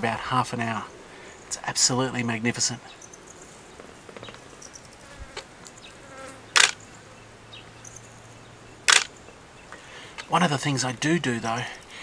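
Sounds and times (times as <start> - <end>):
flying insect buzzing: 3.0 - 7.2
loud sharp click: 6.6 - 6.8, 8.9 - 9.2.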